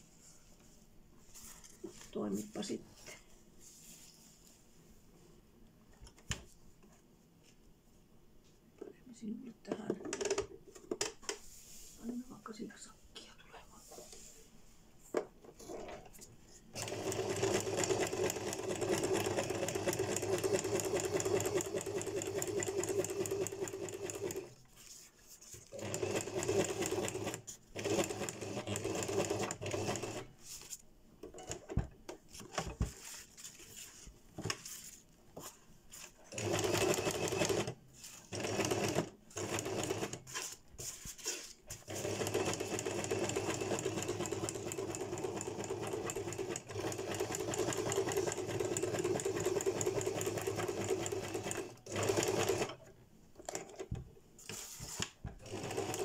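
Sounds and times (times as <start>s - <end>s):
sewing machine stitching: 16.8s - 24.5s, 25.7s - 30.3s, 36.3s - 40.4s, 41.7s - 53.9s, 54.9s - 56.0s.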